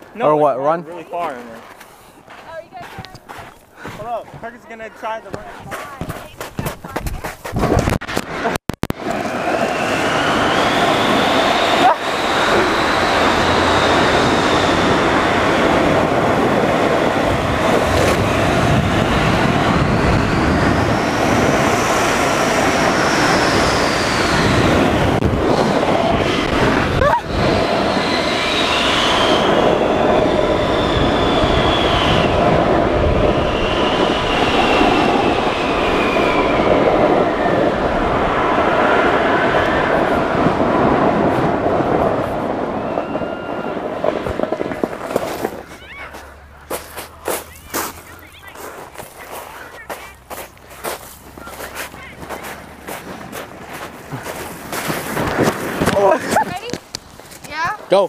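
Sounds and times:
snow tube scraping over snow: 0.2 - 58.0
wind on microphone: 2.5 - 45.8, 50.2 - 57.1
whistling tones: 9.6 - 15.0, 27.8 - 32.4, 33.4 - 35.1, 35.7 - 37.6, 42.7 - 43.9.

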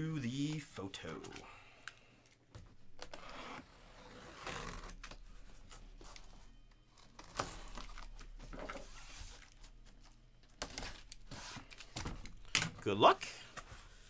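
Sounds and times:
cardboard and tape rustling: 2.5 - 14.0.

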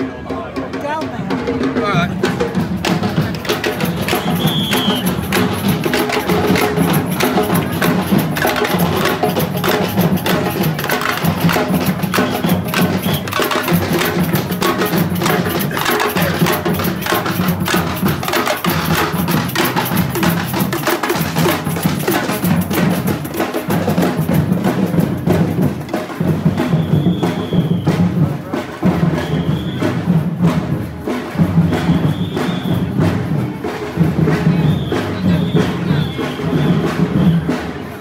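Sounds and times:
parade drum band playing: 0.0 - 38.0.

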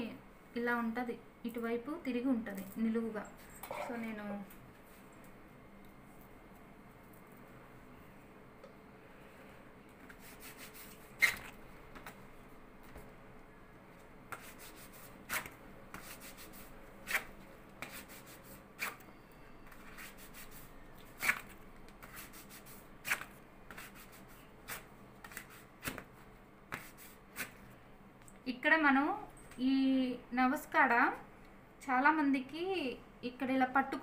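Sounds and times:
hand rubbing waxing strip: 10.0 - 11.6, 14.3 - 19.0, 22.0 - 26.0, 26.7 - 27.6
waxing strip pulled off: 10.5 - 11.6.

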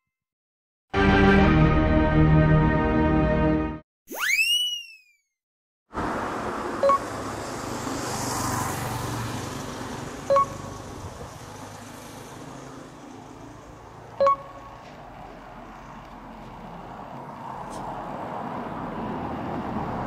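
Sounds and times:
road traffic rushing: 5.9 - 20.0
vehicle passing: 6.0 - 20.0.

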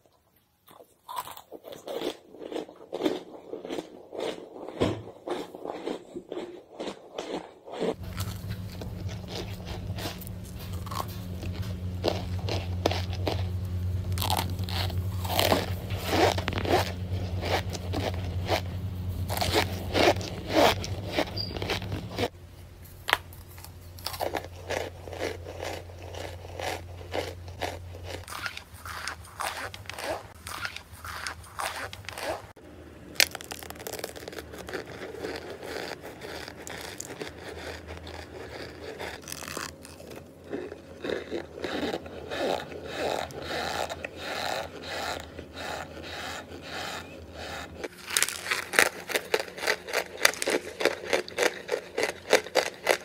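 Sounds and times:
crunching and chewing: 0.0 - 53.0
low steady hum: 7.9 - 53.0.

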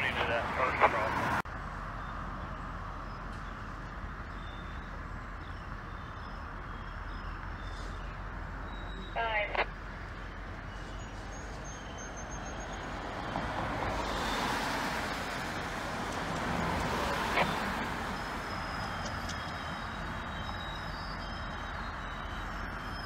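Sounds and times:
car driving past: 12.0 - 19.1.

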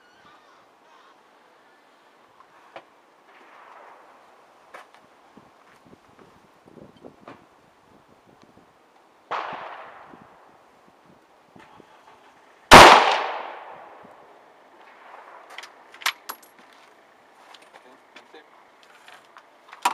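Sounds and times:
quieter gunshot: 3.3 - 4.2, 9.3 - 10.3, 12.7 - 14.1
rifle shot with ringing tail: 9.3 - 10.4, 12.7 - 14.0.

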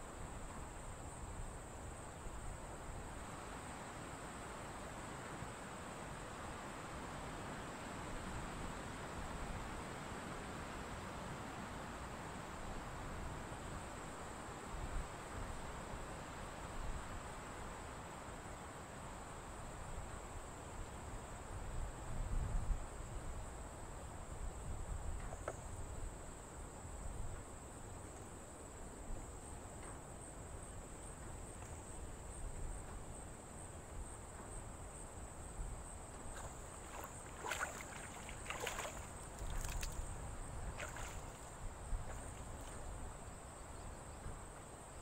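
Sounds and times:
insects buzzing: 24.5 - 45.0
water splashing: 36.3 - 40.1, 40.8 - 41.5.

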